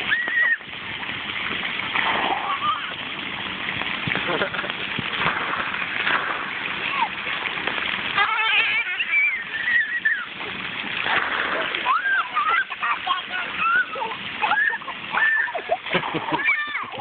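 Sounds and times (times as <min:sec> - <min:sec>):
children calling out: 0:00.0 - 0:00.6, 0:06.8 - 0:07.2, 0:08.1 - 0:10.5, 0:11.6 - 0:17.0
water jets spraying: 0:00.0 - 0:17.0.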